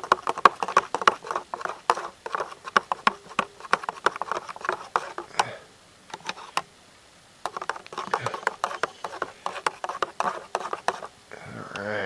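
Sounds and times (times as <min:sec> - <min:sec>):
hands kneading dough: 0:00.0 - 0:05.6, 0:07.5 - 0:11.1.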